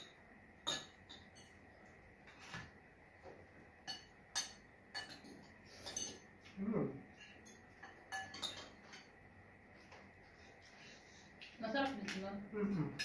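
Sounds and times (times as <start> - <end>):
cutlery clinking on dishes: 0.0 - 1.6, 3.9 - 6.3, 7.1 - 9.2.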